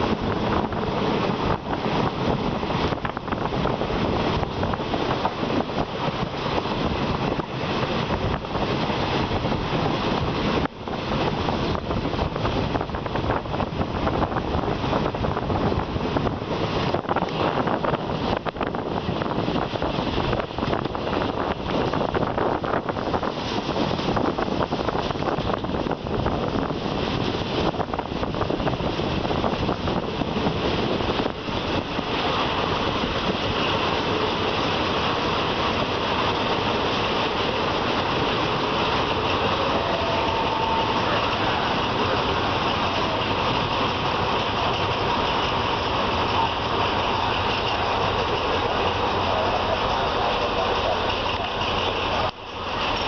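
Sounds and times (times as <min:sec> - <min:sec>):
train rail rumble: 0:00.0 - 0:53.0
wind buffeting: 0:00.0 - 0:53.0
train wheels knocking: 0:30.2 - 0:53.0.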